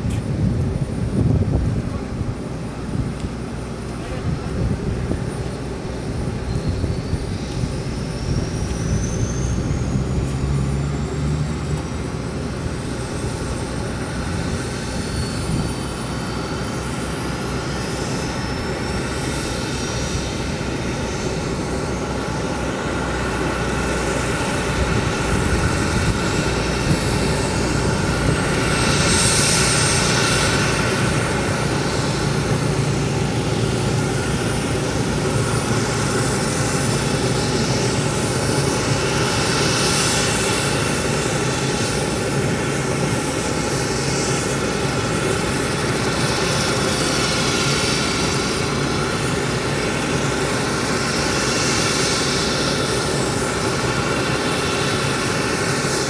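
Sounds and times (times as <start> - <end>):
aircraft turbine engine: 0.0 - 56.0.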